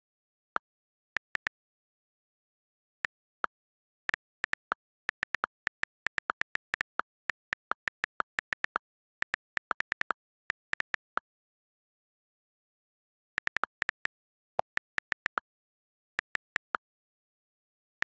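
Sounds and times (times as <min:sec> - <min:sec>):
on-screen keyboard typing clicks: 0:01.1 - 0:01.6, 0:03.0 - 0:11.2, 0:13.4 - 0:15.5, 0:16.1 - 0:16.8.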